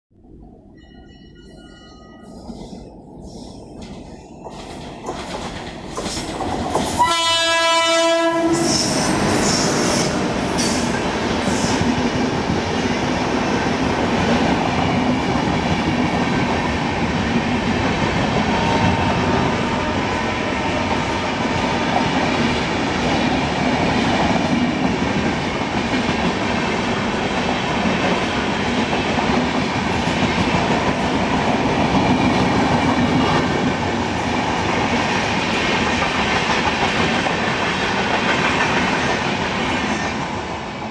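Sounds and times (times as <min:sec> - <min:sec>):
train wheels rumbling on rail: 0:02.2 - 0:40.9
electric locomotive horn: 0:07.0 - 0:10.4.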